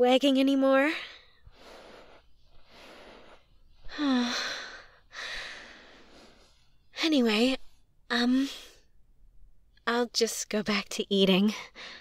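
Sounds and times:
woman breathing: 0.9s - 6.9s, 11.5s - 12.0s.

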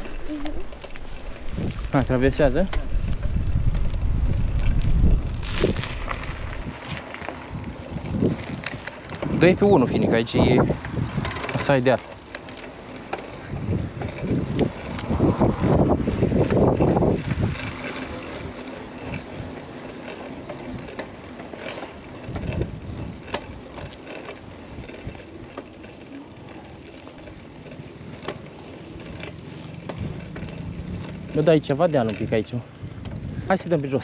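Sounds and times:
wind buffeting microphone: 0.0s - 12.0s, 13.2s - 19.9s, 22.0s - 25.6s, 29.0s - 34.0s
bike clicks and rattles: 0.0s - 34.0s
bike tyres rolling on trail: 0.0s - 34.0s.

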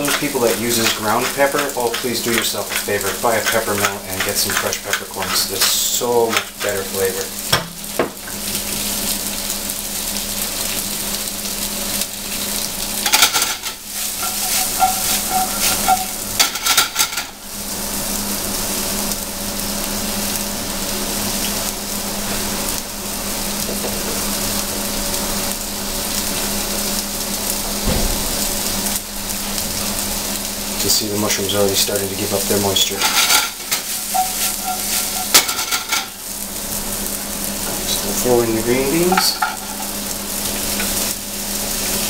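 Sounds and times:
mushrooms sizzling in frying pan: 0.0s - 42.0s
knocking and scraping in pan: 13.0s - 17.4s, 33.0s - 36.1s.

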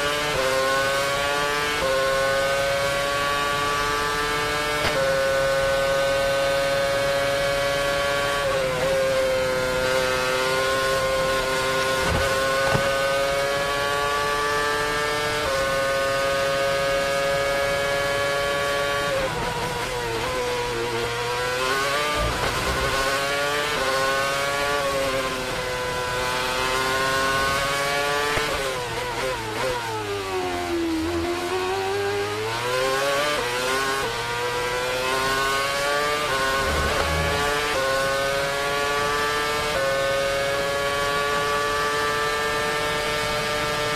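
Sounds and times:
racing car engine at high revs: 0.0s - 43.9s
engine downshifting: 9.6s - 29.8s, 31.0s - 41.4s.

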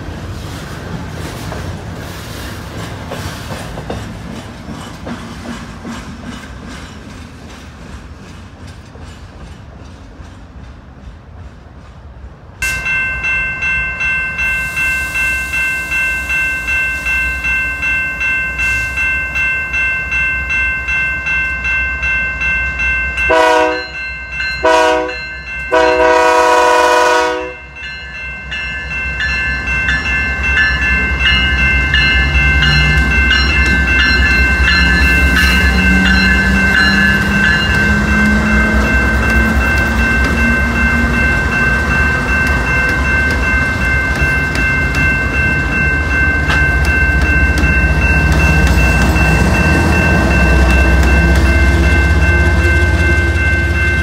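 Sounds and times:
train rumble and wheel clicks: 0.0s - 54.0s
warning bell ringing: 12.6s - 54.0s
locomotive air horn blasts: 23.3s - 24.0s, 24.6s - 27.6s.

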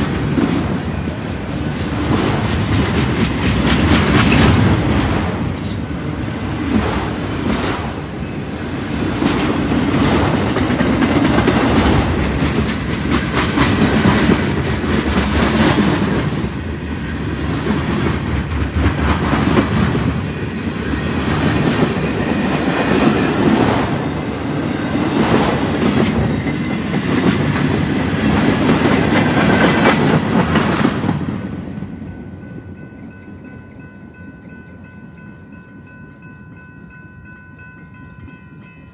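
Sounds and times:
freight train wheels clicking: 0.0s - 38.9s.

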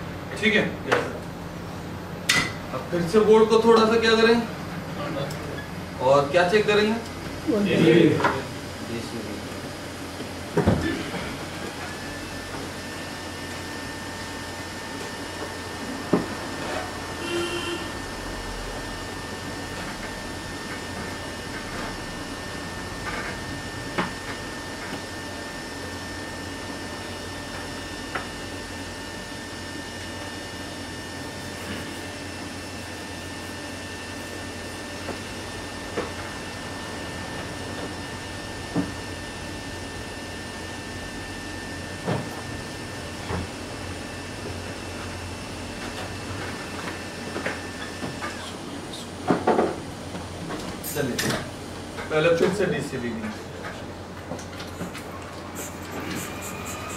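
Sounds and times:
machine hiss and hum: 0.0s - 56.9s
thin high whining tones: 55.5s - 56.9s.

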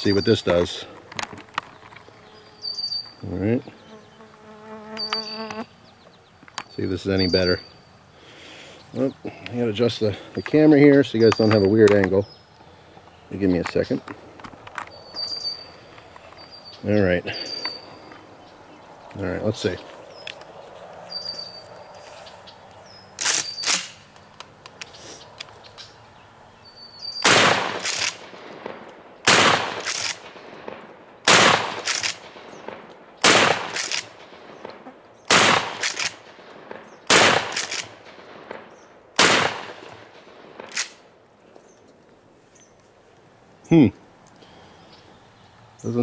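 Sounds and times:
shotgun shots: 27.2s - 41.0s.

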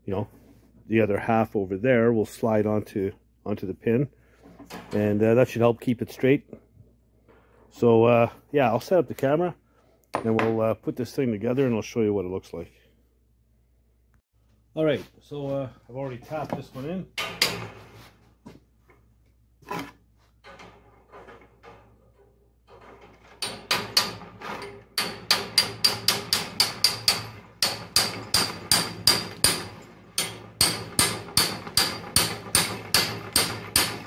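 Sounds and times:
hammer on metal frame: 17.2s - 17.8s, 23.4s - 34.0s.

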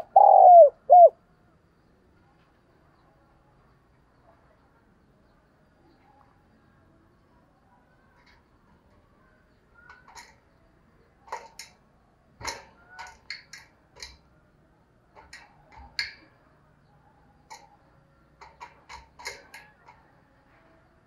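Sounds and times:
dove pecking clicks and taps: 9.8s - 10.5s, 11.2s - 11.8s, 12.4s - 14.3s, 15.1s - 16.4s, 17.4s - 17.8s, 18.4s - 20.1s.

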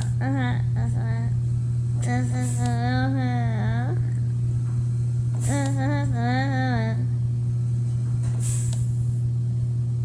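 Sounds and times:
woman humming: 0.0s - 1.4s, 2.0s - 4.4s, 5.4s - 7.3s
loud low hum: 0.0s - 10.0s
brief hisses: 8.4s - 9.1s.

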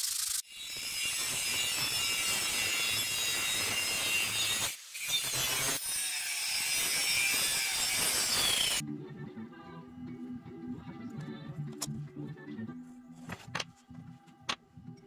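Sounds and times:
angle grinder cutting metal: 0.0s - 8.8s.

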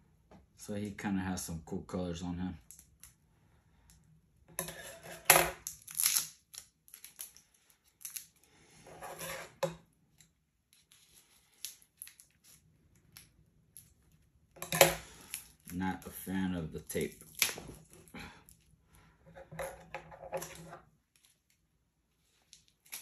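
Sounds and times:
tape and bag crinkling: 5.6s - 8.5s, 10.1s - 14.3s.

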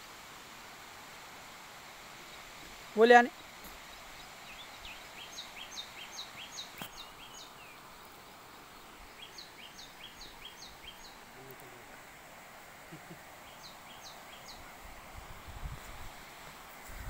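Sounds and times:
faint outdoor background noise: 0.0s - 17.0s.

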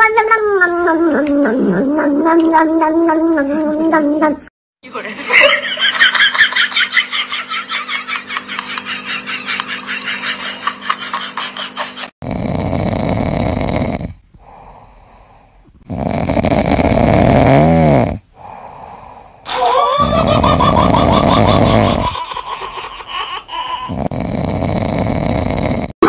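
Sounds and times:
kitten snoring: 12.2s - 18.8s, 23.9s - 26.0s.

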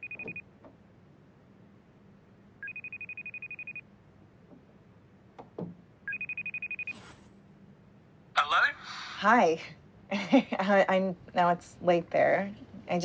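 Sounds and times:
video call ringing tone: 2.6s - 3.8s, 6.1s - 7.0s.

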